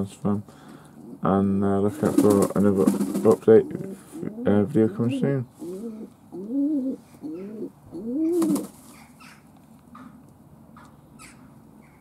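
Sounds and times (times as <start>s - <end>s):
pigeons cooing: 1.9s - 9.4s.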